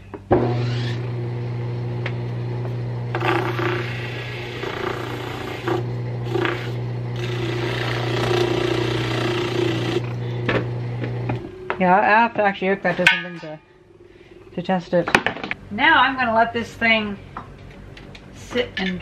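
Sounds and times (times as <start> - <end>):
electric motor humming: 0.3 - 11.8.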